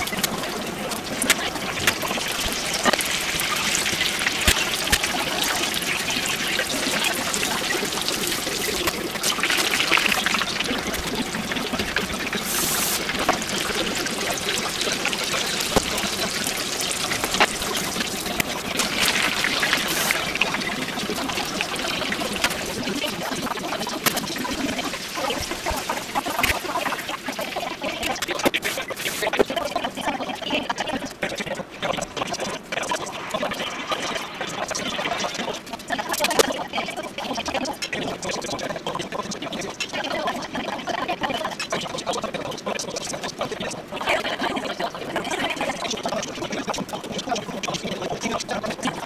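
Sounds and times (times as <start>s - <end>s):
food deep-frying in oil: 0.0s - 49.0s.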